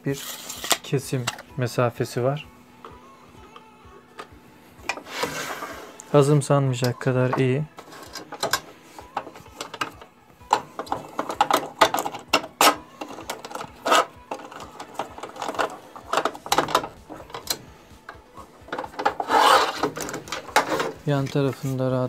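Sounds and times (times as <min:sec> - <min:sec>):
metal gauge clicking and scraping: 0:06.8 - 0:21.8
metal rattle: 0:07.8 - 0:17.7, 0:18.6 - 0:21.6.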